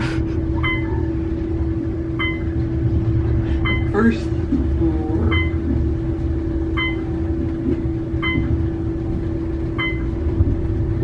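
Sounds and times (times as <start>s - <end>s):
elevator humming and rumbling: 0.0s - 11.0s
short high beeps: 3.6s - 4.0s.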